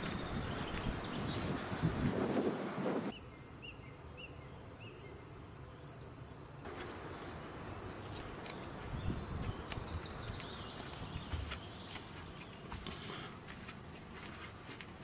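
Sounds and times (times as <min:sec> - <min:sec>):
footsteps on sandy ground: 0:00.0 - 0:03.1, 0:08.0 - 0:15.0.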